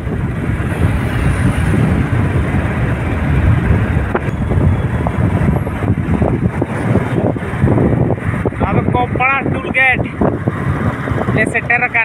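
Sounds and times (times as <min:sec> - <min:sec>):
vehicle road noise rumble: 0:00.0 - 0:12.0
wind buffeting microphone: 0:00.0 - 0:12.0.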